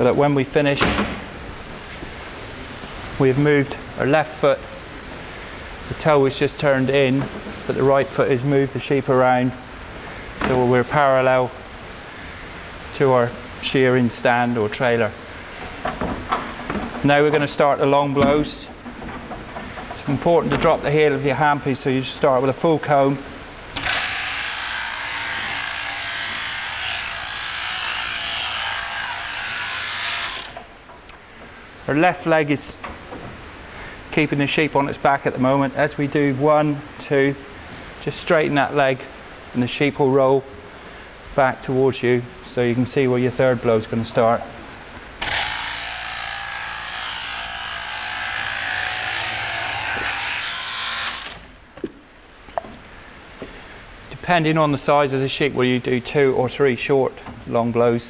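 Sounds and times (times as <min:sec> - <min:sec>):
electric shearing handpiece buzzing: 0:23.8 - 0:30.7, 0:45.2 - 0:51.5.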